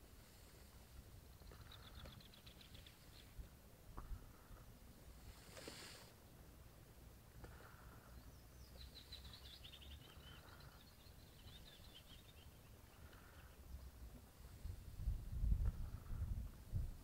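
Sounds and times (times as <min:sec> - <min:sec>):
faint low rumble: 0:00.0 - 0:17.0
small bird chirping: 0:01.2 - 0:03.5, 0:07.6 - 0:14.0.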